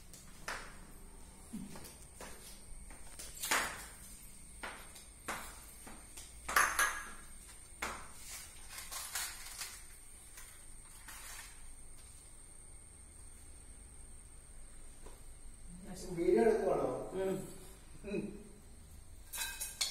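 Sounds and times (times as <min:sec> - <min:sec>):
plates clinking: 0:06.5 - 0:07.3, 0:19.3 - 0:19.9.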